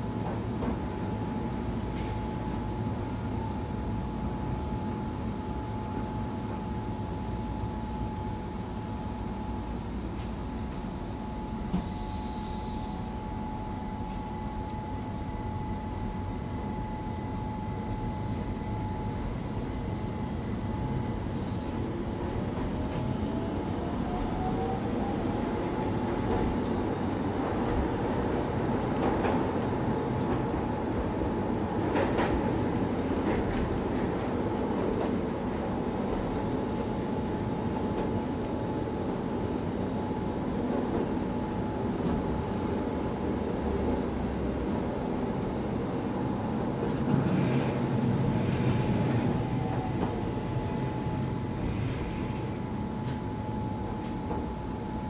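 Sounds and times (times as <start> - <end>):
train wheel and running noise: 0.0 - 55.0.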